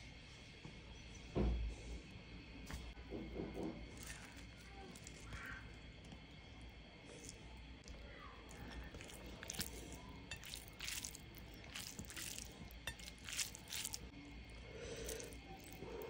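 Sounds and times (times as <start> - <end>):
fingers squishing wet food: 3.8 - 16.0.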